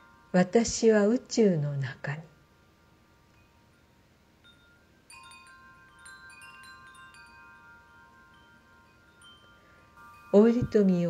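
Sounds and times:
faint chimes ringing: 0.0s - 11.0s.

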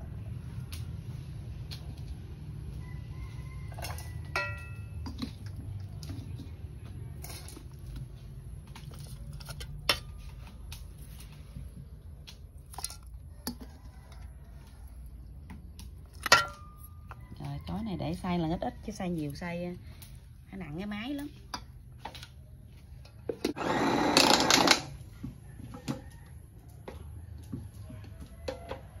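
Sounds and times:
spoon clinking against bowl: 4.3s - 5.1s.

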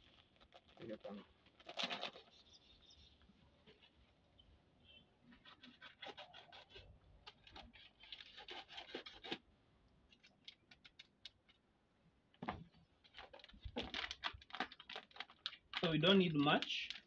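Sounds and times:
knife scraping plastic sachet: 0.0s - 2.8s, 5.3s - 9.4s, 13.1s - 17.0s
plastic rustling: 0.0s - 4.2s, 13.0s - 17.0s.

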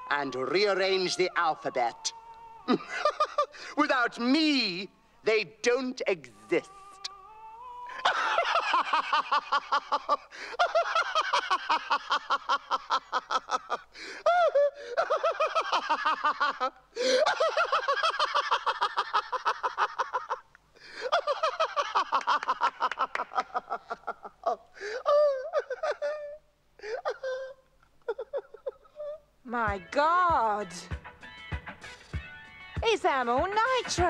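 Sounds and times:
man laughing hard: 2.7s - 3.7s, 7.8s - 29.2s.

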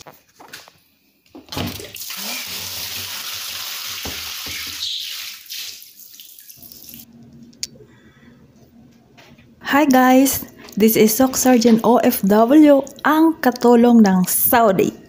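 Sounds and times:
water splashing onto tiled floor: 1.7s - 7.1s.

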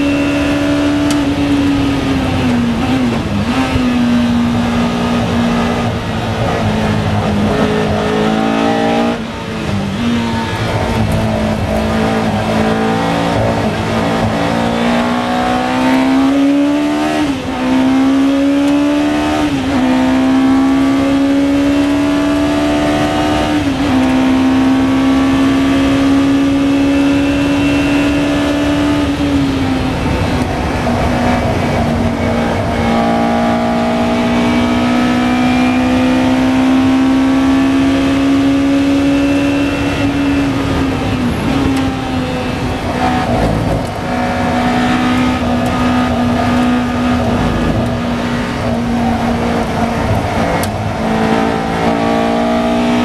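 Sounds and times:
racing car engine at full speed: 0.0s - 53.0s
wind and road rush: 0.0s - 53.0s.

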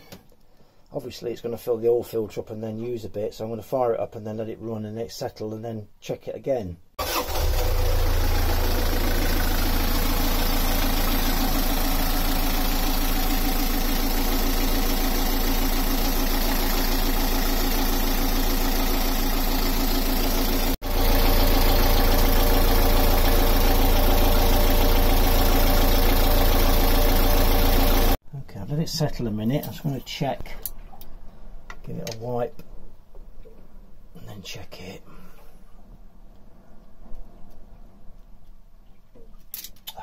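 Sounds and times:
diesel engine idling: 7.0s - 28.2s.

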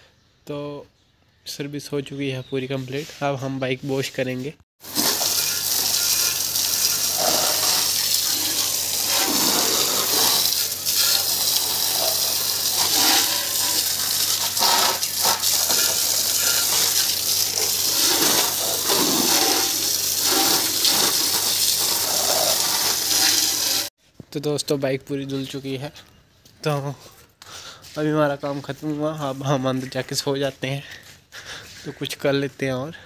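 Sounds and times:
water splashing on concrete: 4.8s - 23.9s.

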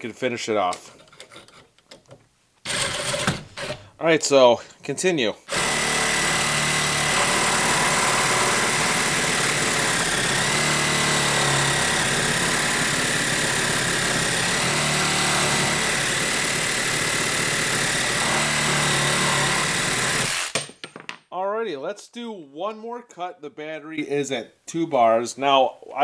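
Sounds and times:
reciprocating saw cutting steel pipe: 5.5s - 20.6s.

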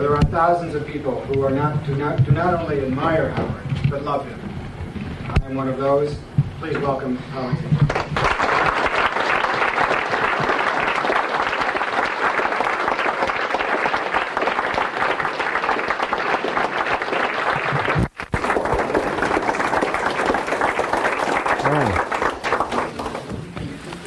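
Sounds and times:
audience applauding: 7.9s - 24.0s.

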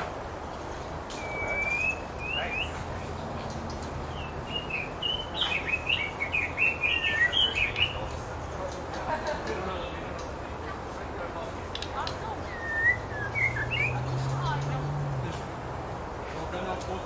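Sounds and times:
bird singing whistled notes: 1.1s - 2.9s, 4.1s - 8.1s, 12.4s - 14.3s.

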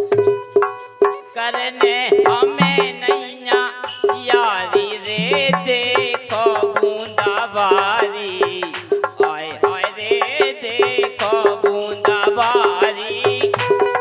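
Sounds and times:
hand drum beat: 0.0s - 14.0s
man singing ornamented melody: 1.3s - 13.6s
harmonium: 4.4s - 14.0s.

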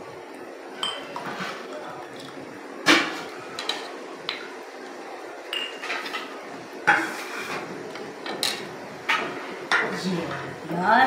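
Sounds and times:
glasses clinking: 0.8s - 1.3s, 5.5s - 6.1s.

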